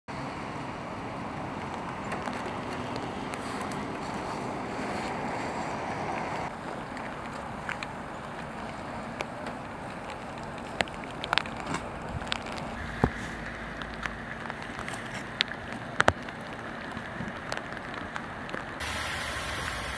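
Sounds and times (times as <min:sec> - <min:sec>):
floodwater rushing over road: 0:00.1 - 0:19.9.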